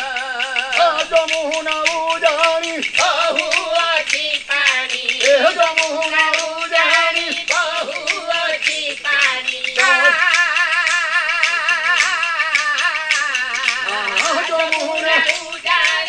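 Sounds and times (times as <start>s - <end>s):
person singing: 0.0s - 16.0s
wooden clappers clicking: 0.0s - 16.0s.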